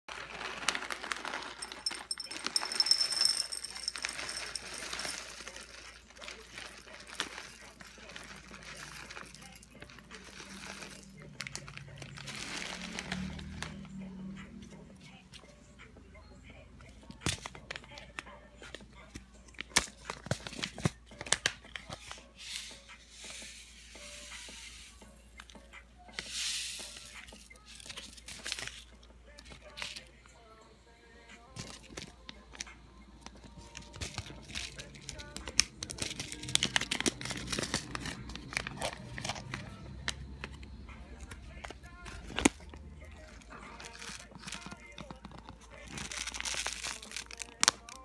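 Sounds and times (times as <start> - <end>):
granola rattling into bowl: 0.2 - 11.0.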